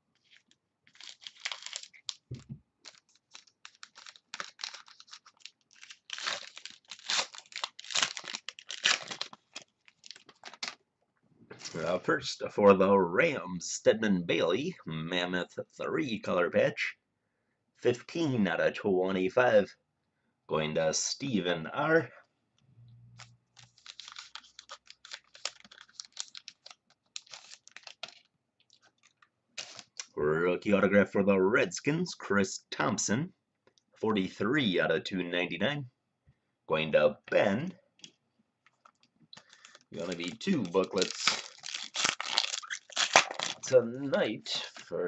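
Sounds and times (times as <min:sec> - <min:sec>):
plastic wrapping crinkling: 0:00.1 - 0:10.8, 0:23.2 - 0:30.1, 0:38.6 - 0:43.8.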